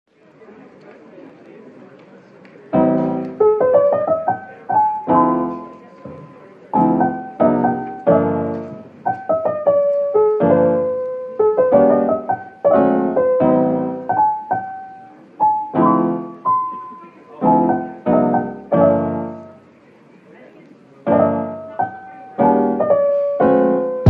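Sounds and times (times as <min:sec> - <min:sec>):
piano chords and melody: 0:02.7 - 0:05.9, 0:06.7 - 0:19.6, 0:21.1 - 0:24.0.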